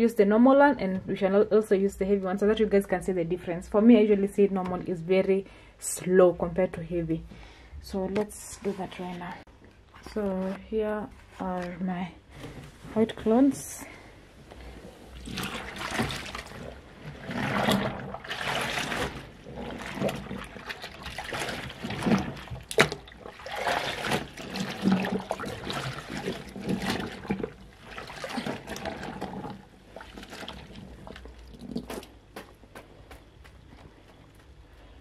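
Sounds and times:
water sloshing and splashing: 0:14.4 - 0:32.3.

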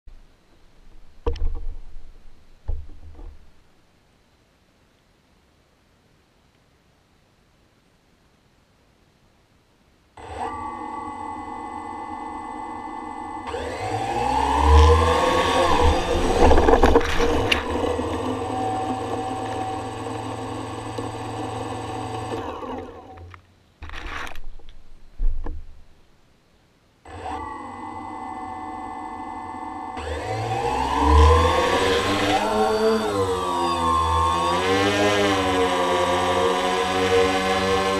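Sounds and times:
sharp knocks: 0:01.2 - 0:02.0, 0:02.6 - 0:03.4
drone motors whining: 0:10.2 - 0:23.3, 0:27.1 - 0:37.9.

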